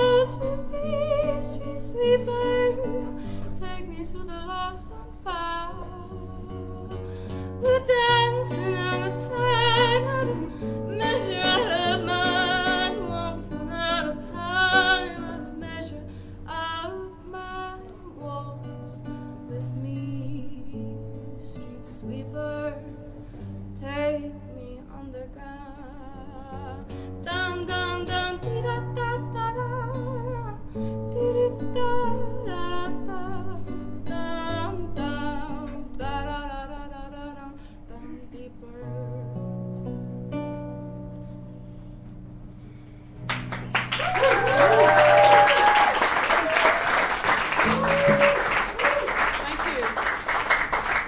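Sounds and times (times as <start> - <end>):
woman singing: 0.0 - 39.6
acoustic guitar picking: 5.1 - 23.8, 47.4 - 48.7
audience applause: 43.3 - 51.0
voices cheering: 43.9 - 49.9.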